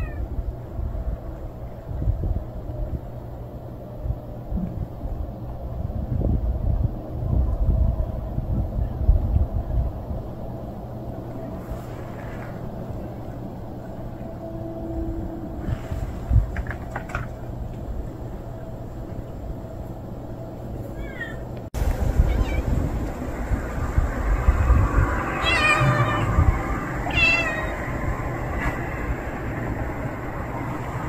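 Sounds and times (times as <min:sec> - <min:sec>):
cats meowing: 0:00.0 - 0:00.3, 0:25.3 - 0:27.8
low rumble: 0:00.0 - 0:20.6, 0:21.6 - 0:31.0.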